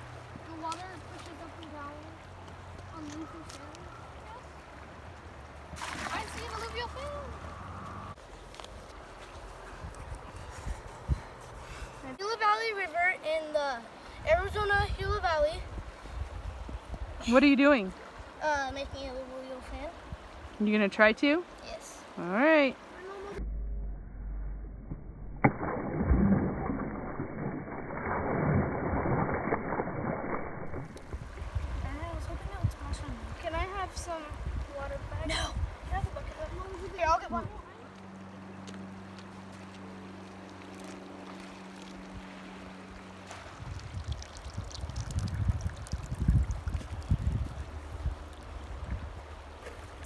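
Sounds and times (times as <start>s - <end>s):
water splashing onto wet sand: 5.7s - 7.3s, 40.4s - 50.0s
steady low hum: 23.2s - 28.2s.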